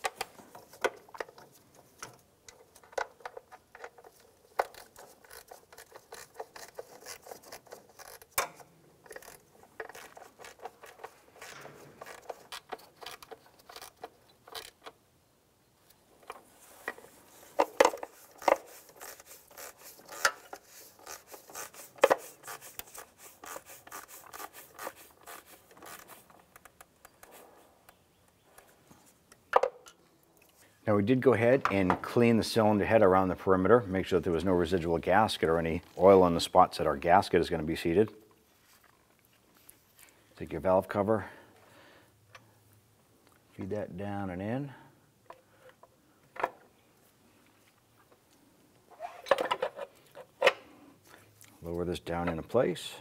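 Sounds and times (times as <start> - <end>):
hand ratchet clicking: 4.6 - 14.8.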